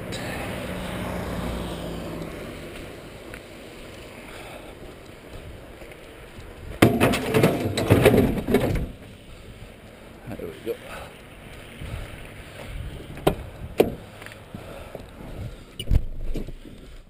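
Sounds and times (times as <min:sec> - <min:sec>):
metal clanks and rattles: 0:06.8 - 0:09.1.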